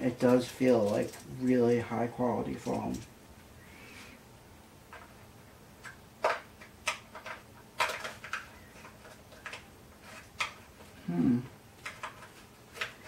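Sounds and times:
plastic parts clicking: 5.8 - 10.7.

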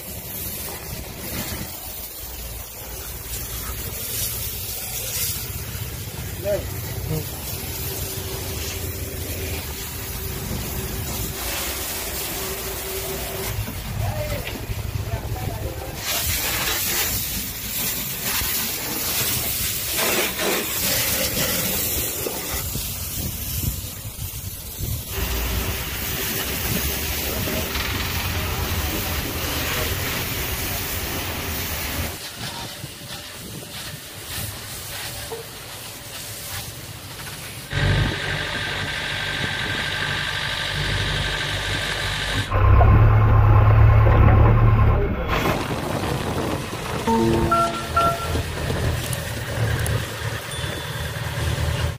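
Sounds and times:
pressure washer water jet hissing: 0.0 - 37.8
diesel engine running: 5.4 - 15.9, 37.7 - 51.9.

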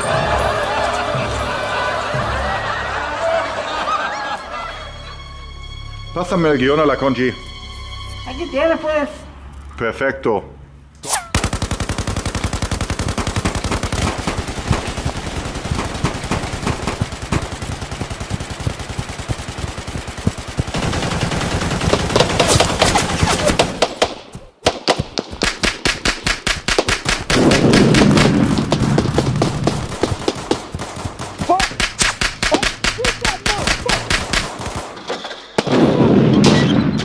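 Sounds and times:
automatic gunfire: 11.3 - 35.0.

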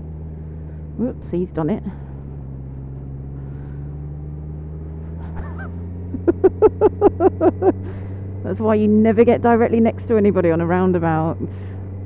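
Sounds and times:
motorcycle engine droning: 0.0 - 12.0
road noise: 0.0 - 12.0
person laughing: 5.1 - 8.1.

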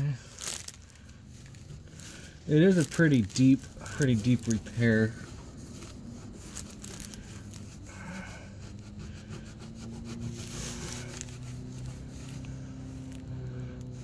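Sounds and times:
rag rubbing on fiberglass hull: 7.6 - 12.4.

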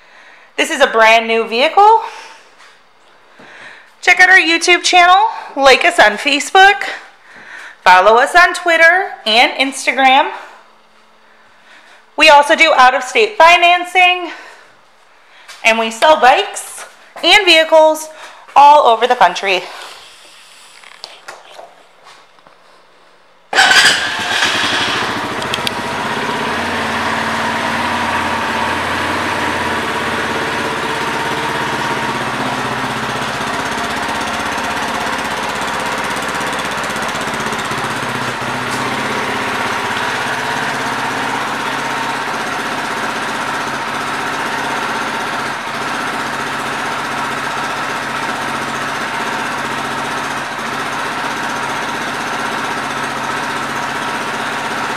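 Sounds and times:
atv engine idling: 23.6 - 54.9.

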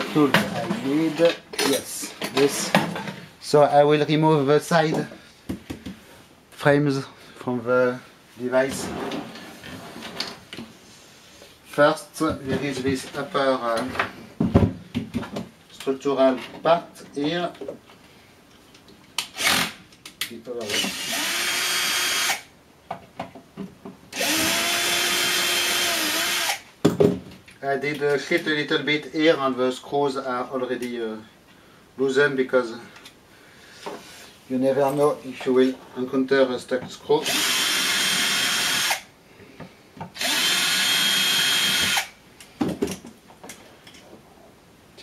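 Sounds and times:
electric screwdriver whirring: 20.7 - 22.4, 24.2 - 26.6, 37.2 - 39.0, 40.2 - 42.1.

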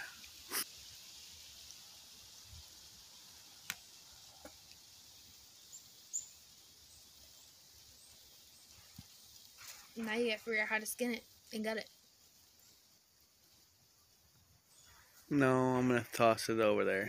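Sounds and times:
faint steady hiss: 0.0 - 17.0
high bird chirps: 5.2 - 12.9.

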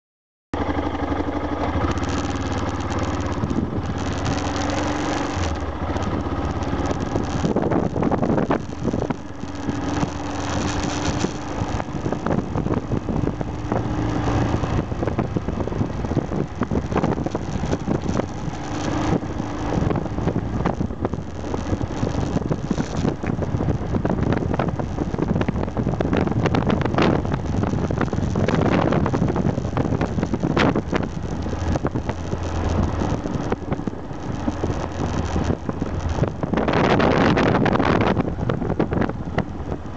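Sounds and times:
motorcycle engine running: 0.6 - 39.9
wind buffeting microphone: 1.9 - 39.9.

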